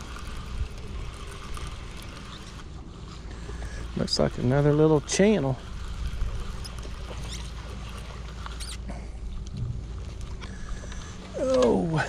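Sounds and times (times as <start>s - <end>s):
fishing reel cranking: 0.0s - 9.5s, 10.2s - 12.0s
faint clicks and squeaks: 0.0s - 11.9s
fish splashing: 5.6s - 12.0s
low rumble: 8.9s - 12.0s
person exclaiming: 11.4s - 12.0s.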